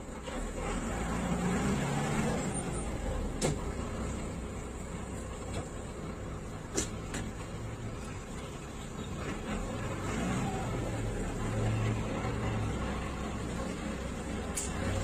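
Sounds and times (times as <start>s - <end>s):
bus engine rumble: 0.0s - 15.0s
bus body knocks and rattles: 3.2s - 4.0s, 6.6s - 7.7s.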